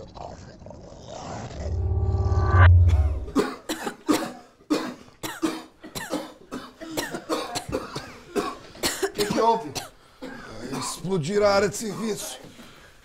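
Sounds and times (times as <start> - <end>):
loud deep rumble: 1.5 - 3.4
people coughing: 3.4 - 11.0.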